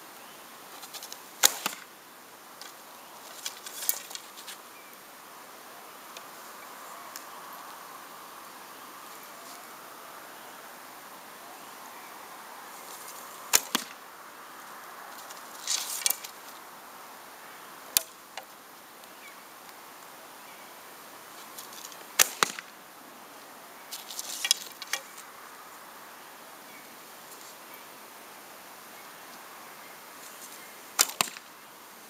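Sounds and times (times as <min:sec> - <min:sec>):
arrows rattling in a quiver: 0:01.4 - 0:01.9, 0:13.5 - 0:14.0, 0:21.8 - 0:22.7, 0:31.0 - 0:31.5.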